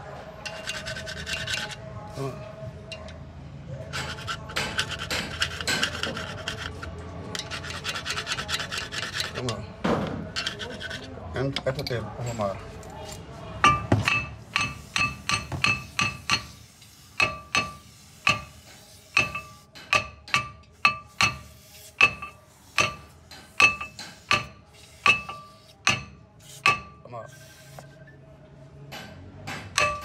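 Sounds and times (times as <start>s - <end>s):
hammer striking metal: 13.6s - 16.6s, 17.2s - 27.1s, 28.9s - 30.0s.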